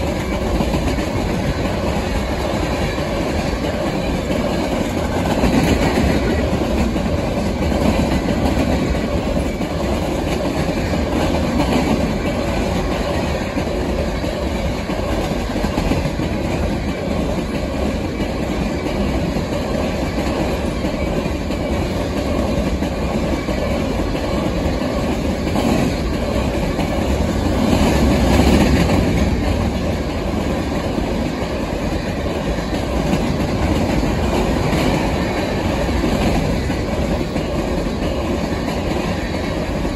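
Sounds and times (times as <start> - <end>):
train wheels rumbling on rails: 0.0 - 39.9.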